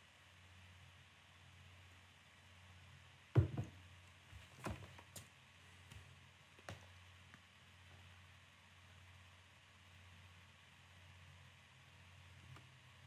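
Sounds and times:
faint low hum: 0.0s - 13.0s
glass knocking on desk: 3.4s - 3.8s.

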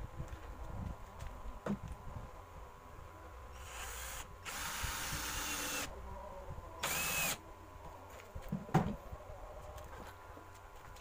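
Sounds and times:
cordless drill driving screws: 3.6s - 5.9s, 6.8s - 7.4s.

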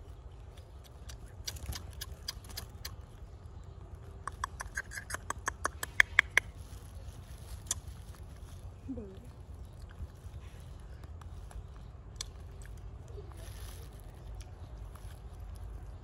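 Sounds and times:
monkey chewing with wet smacks: 4.2s - 6.6s.

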